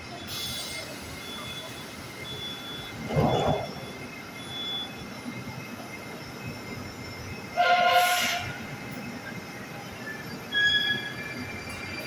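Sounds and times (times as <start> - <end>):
low hum of standing train: 0.0 - 12.0
train horn blast: 7.6 - 8.6.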